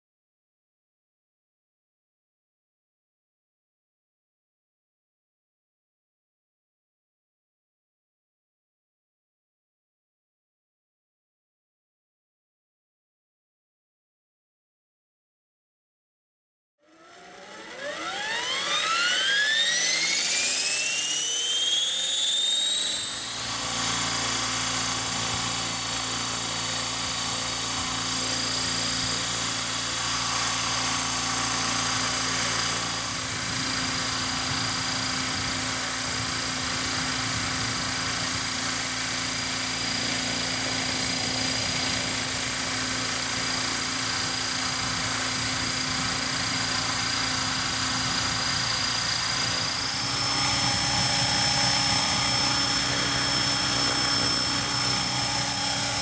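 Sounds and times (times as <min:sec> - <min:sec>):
model helicopter whine: 0:16.8 - 0:56.0.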